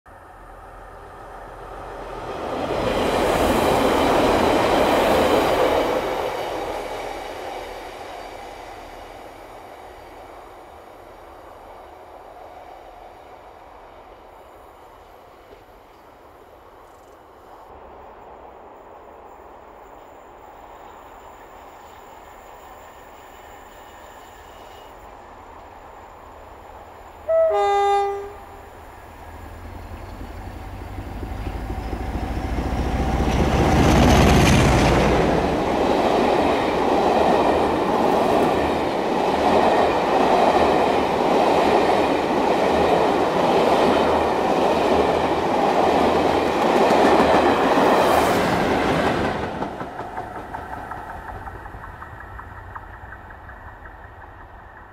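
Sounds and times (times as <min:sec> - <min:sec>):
diesel locomotive engine passing: 0:00.1 - 0:16.6, 0:19.2 - 0:54.9
train coaches rumbling and clacking: 0:00.2 - 0:16.1, 0:19.7 - 0:54.9
two-tone train horn: 0:27.2 - 0:28.8.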